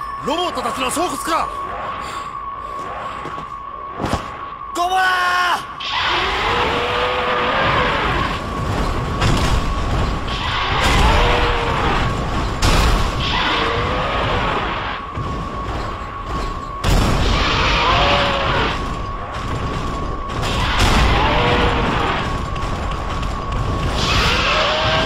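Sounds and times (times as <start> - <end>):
heavy booms and impacts: 5.8 - 25.0.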